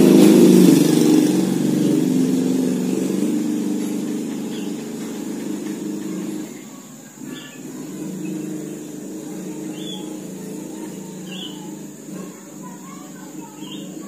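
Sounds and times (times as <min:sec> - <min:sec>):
engine hum: 0:00.0 - 0:14.0.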